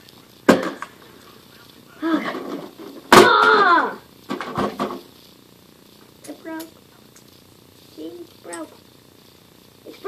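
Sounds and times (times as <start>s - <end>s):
child's wordless exclamations: 3.2s - 4.0s.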